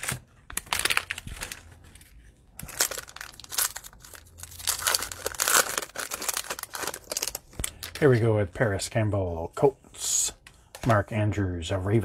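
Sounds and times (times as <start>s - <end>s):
plastic wrapper crinkling: 0.0s - 8.2s.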